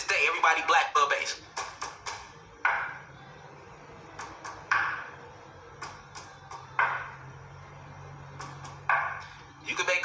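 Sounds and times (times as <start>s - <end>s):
sharp knocks: 4.2s - 5.1s, 6.8s - 7.2s.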